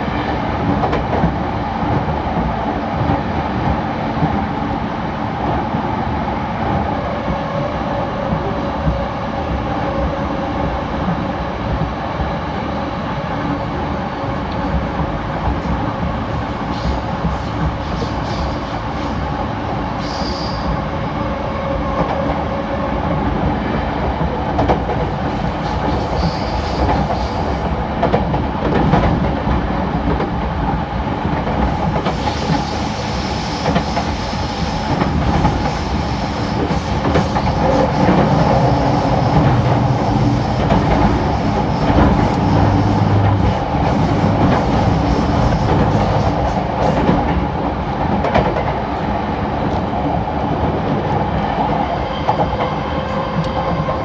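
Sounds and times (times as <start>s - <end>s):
electric train rumbling on rails: 0.0s - 54.0s.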